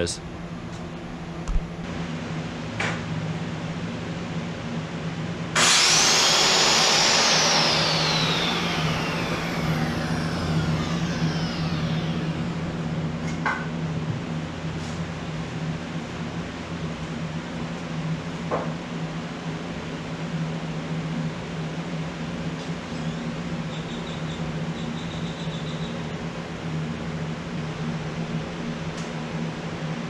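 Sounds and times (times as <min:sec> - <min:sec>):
steady low hum: 0:00.0 - 0:30.0
power saw whining: 0:05.6 - 0:13.7.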